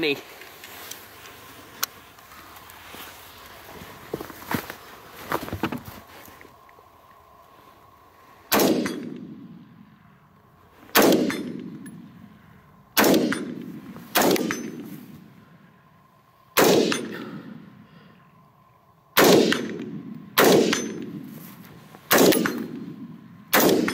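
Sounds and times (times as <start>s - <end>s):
rifle shots: 8.5s - 9.5s, 10.9s - 11.8s, 13.0s - 14.9s, 16.6s - 17.4s, 19.2s - 21.2s, 22.1s - 23.9s.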